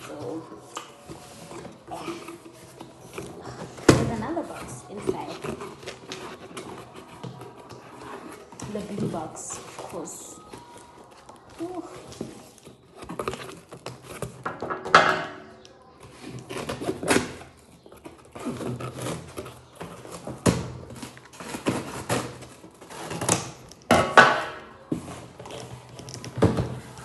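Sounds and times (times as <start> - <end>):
cardboard scraping and tearing: 0.0 - 10.8, 16.0 - 23.8.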